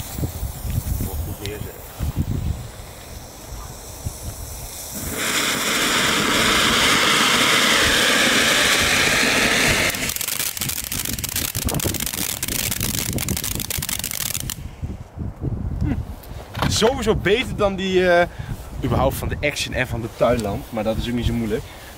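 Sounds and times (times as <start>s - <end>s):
firework fountain hissing: 0.0s - 14.7s
firework crackling: 0.0s - 14.8s
fuse fizzing: 2.6s - 14.6s.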